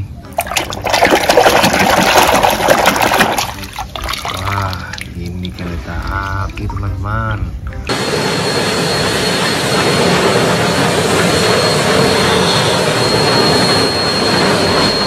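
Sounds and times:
thin high steady tone: 7.7s - 15.0s
steam locomotives exhaust rush: 7.9s - 15.0s.

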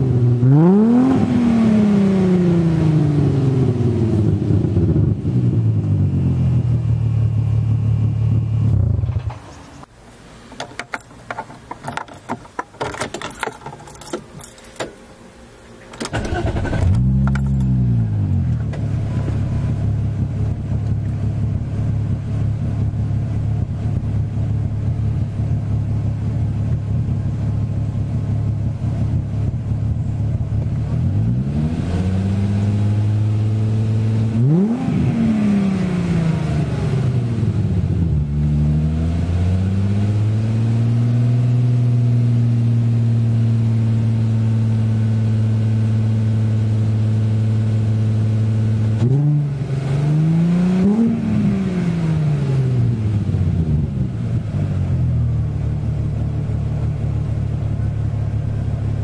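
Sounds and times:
engine revving: 0.0s - 6.8s, 16.1s - 21.0s, 30.4s - 42.8s, 48.9s - 55.1s
car engine starting and idling: 0.0s - 59.0s
keys jangling: 10.6s - 15.0s, 17.2s - 17.8s.

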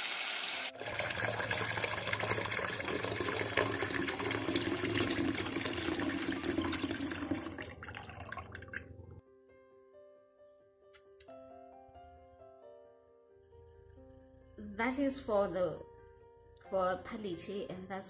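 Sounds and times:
chicken sizzling in a pot: 0.0s - 7.2s
tap water filling a pot: 0.0s - 9.1s.

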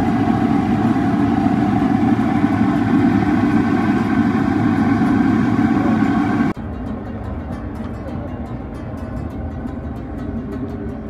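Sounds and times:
oil deep-frying rumble and sizzle: 0.0s - 6.6s.

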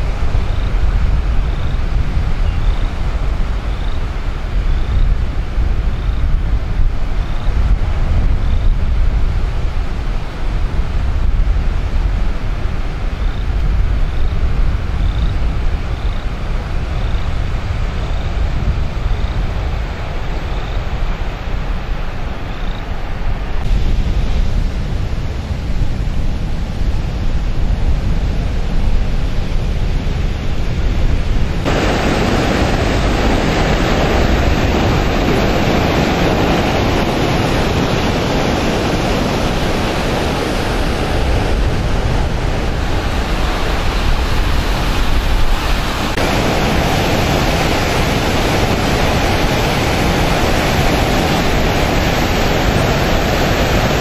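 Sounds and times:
wind rumbling on microphone: 0.0s - 54.0s
water rushing through spillway: 15.5s - 54.0s.

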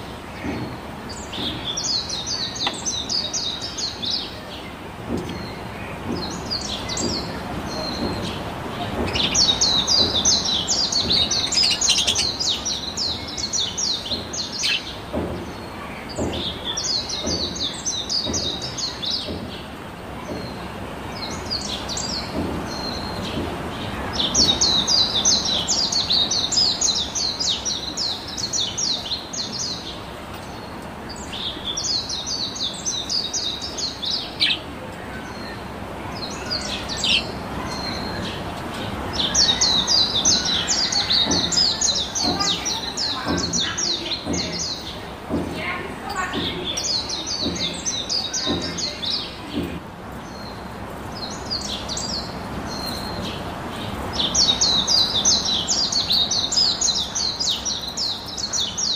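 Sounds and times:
budgerigars chattering: 5.2s - 14.9s.

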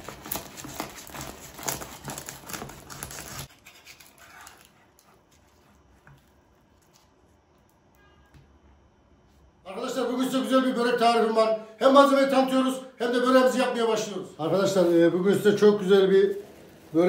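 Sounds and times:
metal spatula scraping: 0.0s - 5.8s
pastry crust crackling under knife: 0.0s - 7.1s.

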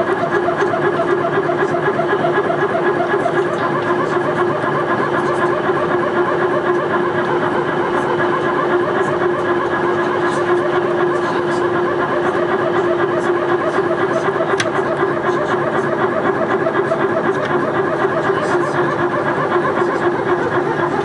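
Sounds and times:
aircraft cabin engine hum: 0.0s - 21.0s
fast pulsing: 0.0s - 21.0s.

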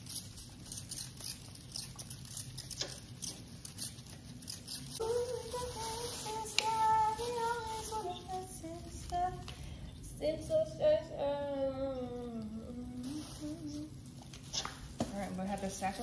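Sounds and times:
plastic bags crinkling: 1.4s - 9.7s, 12.2s - 16.0s.

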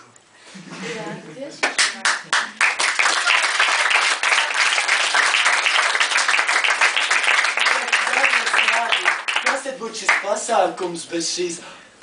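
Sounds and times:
audience applauding: 1.6s - 10.4s.

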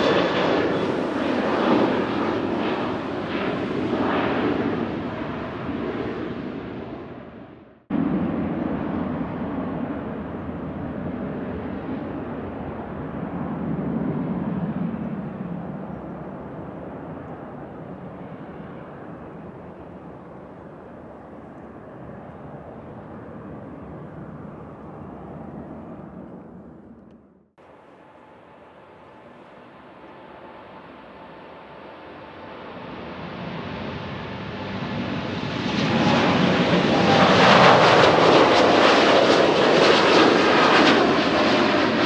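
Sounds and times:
jet engines roaring: 0.0s - 42.0s.

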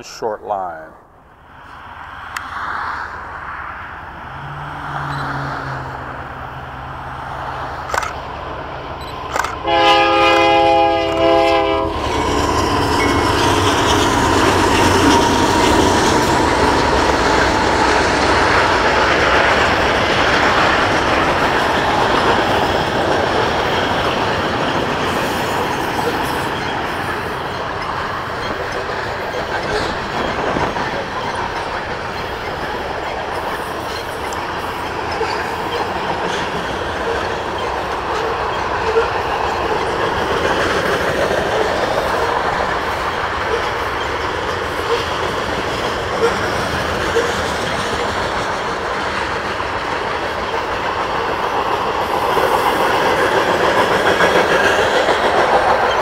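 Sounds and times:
train rumbling past: 0.0s - 56.0s
wheels clattering on rails: 4.9s - 56.0s
locomotive horn blast: 9.6s - 12.0s.

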